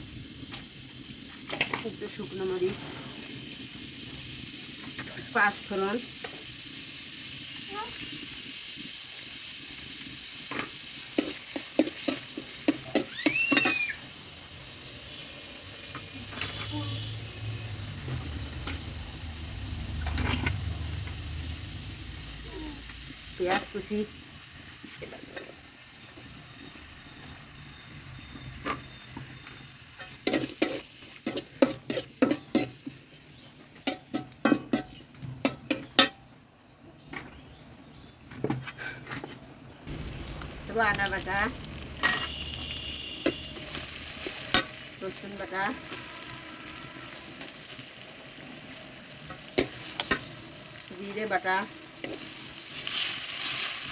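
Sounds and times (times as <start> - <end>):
spices sizzling in hot oil: 0.0 - 38.1, 39.7 - 53.9
metal spatula scraping a pan: 30.0 - 32.9, 42.0 - 47.5.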